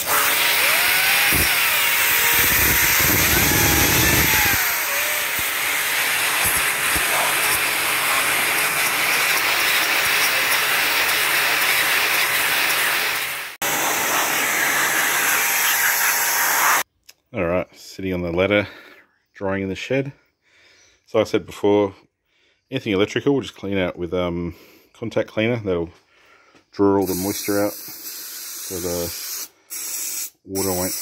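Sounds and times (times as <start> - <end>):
pressure washer spray hissing: 2.2 - 16.8, 27.0 - 31.0.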